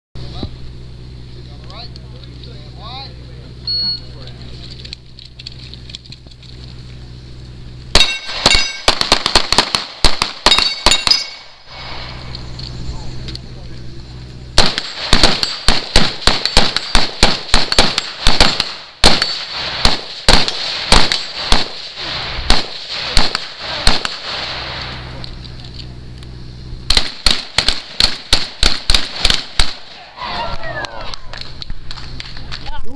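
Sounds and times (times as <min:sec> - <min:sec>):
rifle semi-automatic fire: 0:08.0 - 0:11.2, 0:14.6 - 0:24.6, 0:26.9 - 0:29.9.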